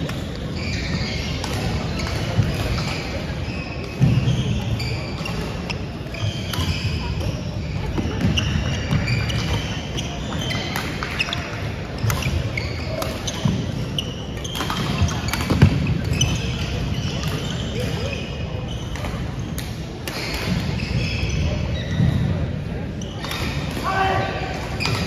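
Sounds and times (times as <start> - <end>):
shoes squeaking on wooden floor: 0.6 - 19.0.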